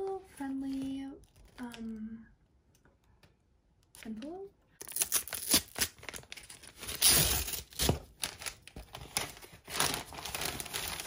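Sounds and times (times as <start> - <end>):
paper envelope tearing and crinkling: 4.8 - 11.0.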